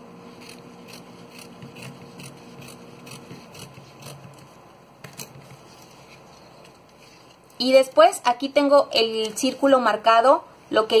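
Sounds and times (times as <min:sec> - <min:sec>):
scissors snipping fabric: 0:00.4 - 0:05.9.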